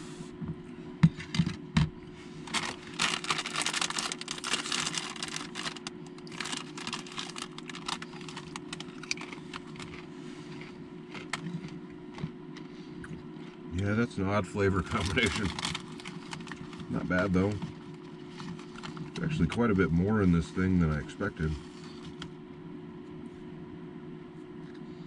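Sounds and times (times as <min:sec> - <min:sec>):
chip bag crinkling: 0:02.4 - 0:12.3, 0:14.7 - 0:19.6.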